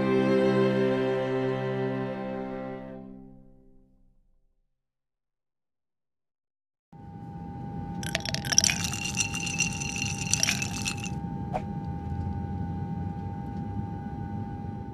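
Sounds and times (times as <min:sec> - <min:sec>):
glassy shimmering sparkle: 0:08.0 - 0:11.2.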